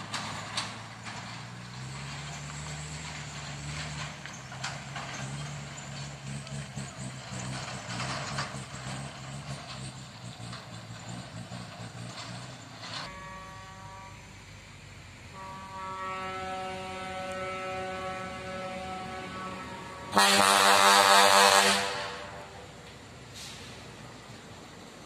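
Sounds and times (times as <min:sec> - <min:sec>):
truck engine rumbling: 0:00.0 - 0:25.0
truck air horn: 0:13.0 - 0:14.6, 0:15.3 - 0:22.8.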